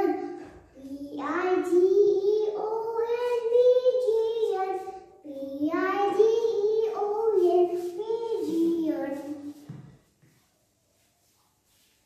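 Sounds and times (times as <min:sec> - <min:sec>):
child singing: 0:00.0 - 0:09.6.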